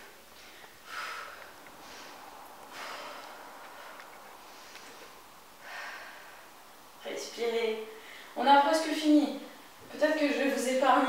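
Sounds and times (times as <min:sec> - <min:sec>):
woman breathing hard: 0:00.4 - 0:06.9.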